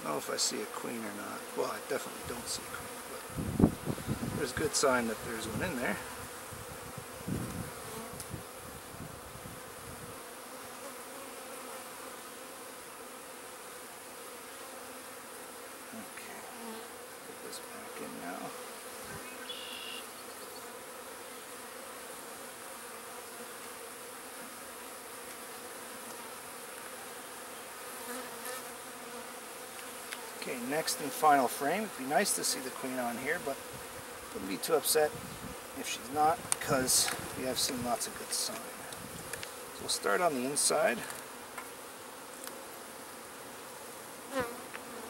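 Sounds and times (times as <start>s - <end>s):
bees buzzing: 0.0s - 45.0s.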